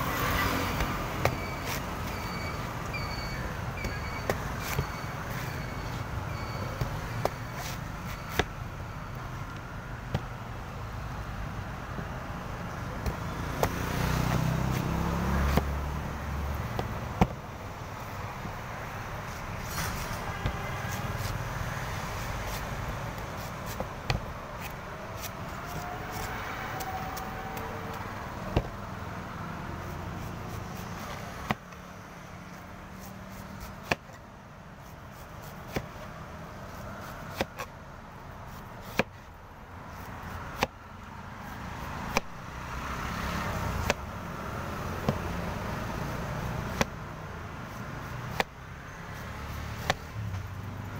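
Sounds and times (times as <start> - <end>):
cleaver chopping coconut husk: 0.0 - 2.1, 3.4 - 5.5, 12.8 - 17.4, 22.4 - 28.8, 29.6 - 31.8, 33.0 - 34.2, 35.1 - 37.8, 38.5 - 39.3, 39.9 - 40.8, 41.5 - 50.4
road traffic hum: 0.0 - 50.9.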